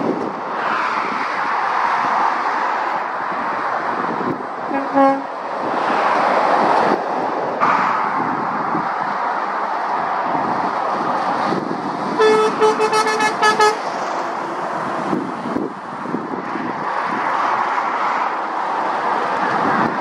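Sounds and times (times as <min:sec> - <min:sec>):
traffic passing on road: 0:00.0 - 0:20.0
short horn toots: 0:04.7 - 0:05.3, 0:12.2 - 0:13.8
vehicle horn blasts: 0:04.7 - 0:05.3, 0:12.2 - 0:13.8.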